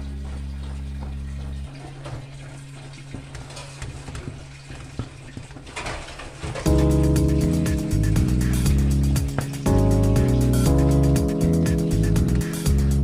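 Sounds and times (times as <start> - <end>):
low background music notes: 0.0 - 3.8, 6.7 - 13.0.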